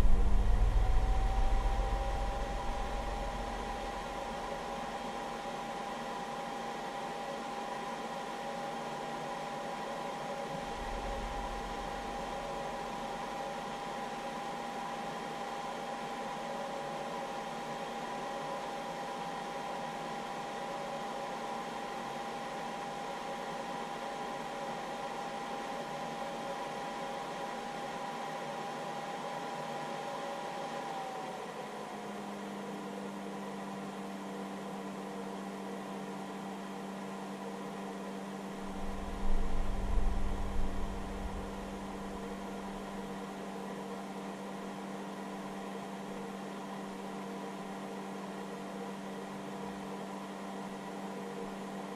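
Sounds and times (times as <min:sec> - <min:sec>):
low rumbling bump: 0:00.0 - 0:03.9, 0:38.8 - 0:42.0
low hum: 0:00.0 - 0:04.6, 0:38.6 - 0:43.0
cooling fan whining: 0:00.0 - 0:51.9.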